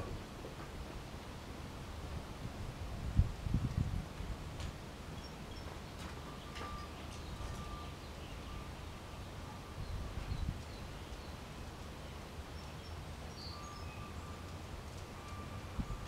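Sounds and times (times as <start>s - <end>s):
faint bird chirps: 12.6s - 14.6s.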